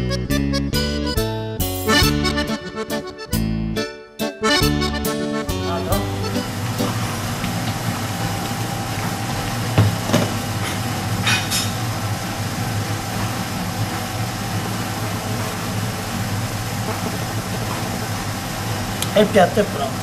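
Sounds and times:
kitchen ventilation hum: 0:05.4 - 0:20.0.

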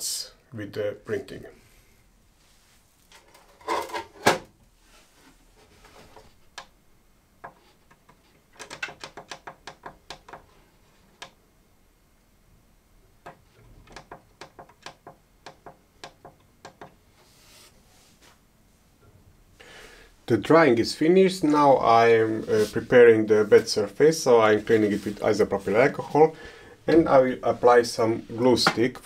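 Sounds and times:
rustle of handling: 0:04.7 - 0:06.5, 0:17.1 - 0:18.9.

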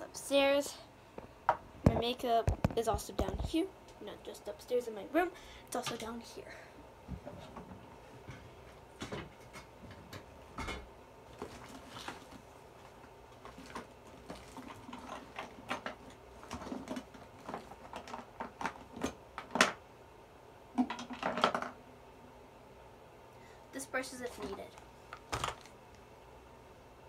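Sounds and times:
makeup items clicking and clattering: 0:13.4 - 0:19.8.

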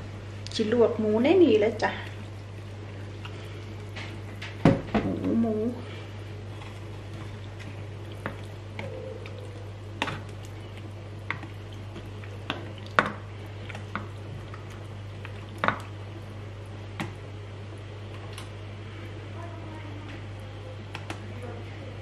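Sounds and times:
steady low hum: 0:00.0 - 0:22.0
wet squishing of meat: 0:06.5 - 0:16.0.

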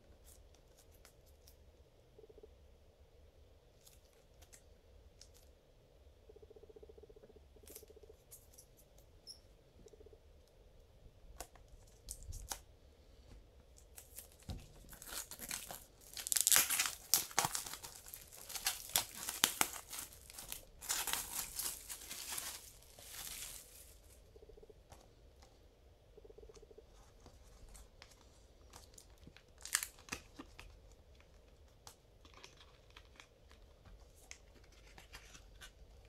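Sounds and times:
plastic shrink-wrap crinkling: 0:13.8 - 0:24.2, 0:27.7 - 0:35.7.

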